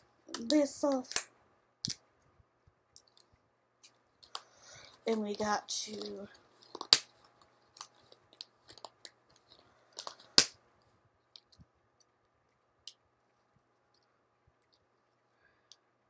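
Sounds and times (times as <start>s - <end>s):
plastic clicks and snaps: 0.3s - 2.0s.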